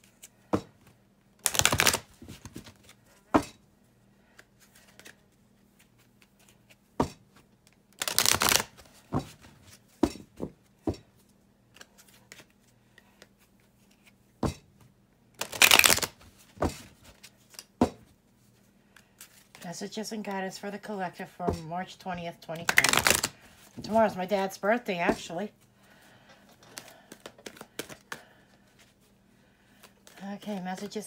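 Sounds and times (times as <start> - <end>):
cards clicking: 1.4 - 2.1, 8.0 - 8.7, 15.4 - 16.2, 22.6 - 23.3, 26.7 - 28.2
cards being shuffled: 1.4 - 3.0, 4.3 - 6.8, 8.0 - 9.8, 11.7 - 14.2, 15.4 - 17.7, 22.6 - 23.9, 26.7 - 29.0.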